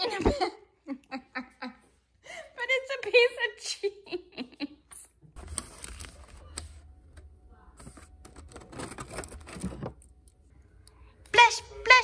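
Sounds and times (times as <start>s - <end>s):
plastic tray crinkling: 7.8s - 10.1s.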